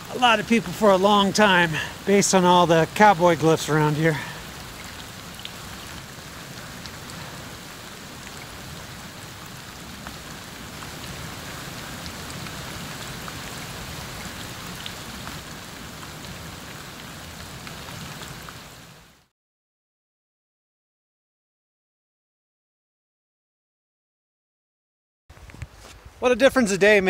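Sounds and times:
steady rain hiss: 0:00.0 - 0:19.3, 0:25.3 - 0:27.0.

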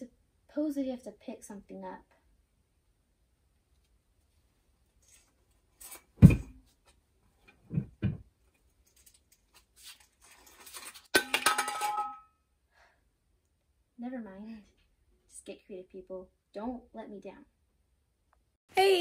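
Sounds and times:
heavy thump: 0:06.2 - 0:06.6.

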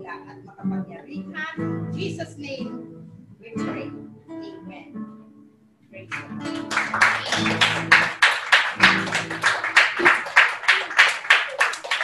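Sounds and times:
acoustic guitar strumming: 0:00.0 - 0:10.2
rhythmic hand clapping: 0:06.1 - 0:12.0.

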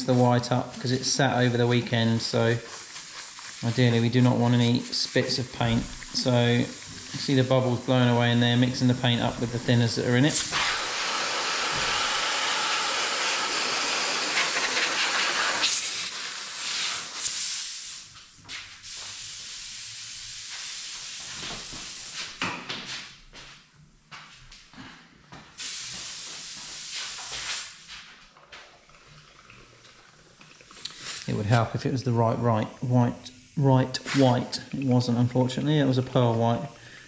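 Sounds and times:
paint bubbling: 0:00.0 - 0:10.7, 0:28.4 - 0:37.0
airbrush hissing: 0:00.0 - 0:18.1, 0:25.6 - 0:27.9, 0:30.6 - 0:37.0.

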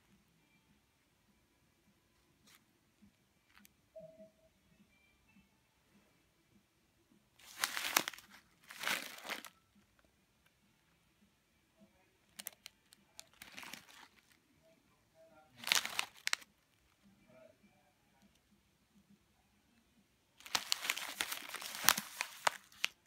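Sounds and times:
plastic snack bag crinkling: 0:07.4 - 0:09.6, 0:12.4 - 0:12.6, 0:13.2 - 0:14.4, 0:15.6 - 0:16.8, 0:20.4 - 0:23.0.

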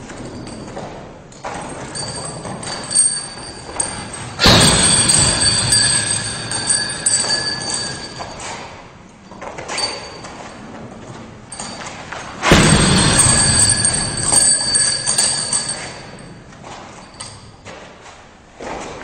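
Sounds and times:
metallic rattle of hanging hardware: 0:01.4 - 0:08.5, 0:11.5 - 0:16.4
punching bag kicked thud: 0:12.5 - 0:15.2.

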